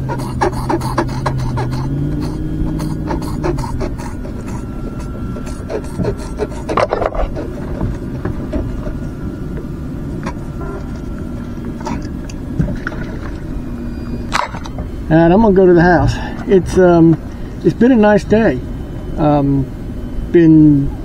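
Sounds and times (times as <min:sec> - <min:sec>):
rubbing and scraping handling noise: 0:00.0 - 0:12.9.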